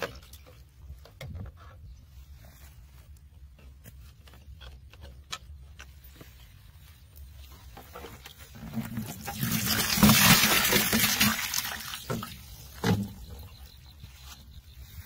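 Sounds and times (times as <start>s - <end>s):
water splashing into bucket: 8.5s - 13.3s.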